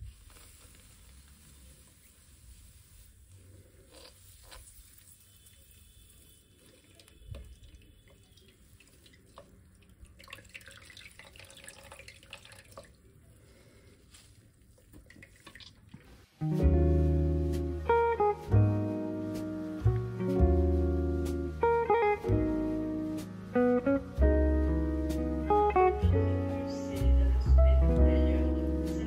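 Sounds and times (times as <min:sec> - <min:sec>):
juice trickling and dripping: 0:02.9 - 0:16.3
acoustic guitar music: 0:16.4 - 0:29.0.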